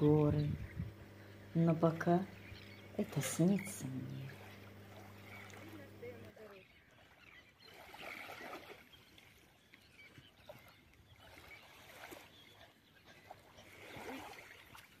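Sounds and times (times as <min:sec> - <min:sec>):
sea lapping at shore: 0:00.0 - 0:15.0
faint bird calls: 0:02.3 - 0:08.8.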